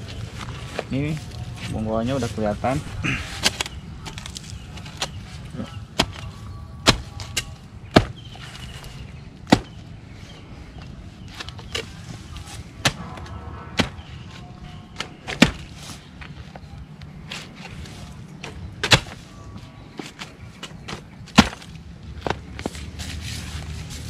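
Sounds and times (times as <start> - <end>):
hoe chopping into soil: 18.4 - 19.2, 20.9 - 21.7.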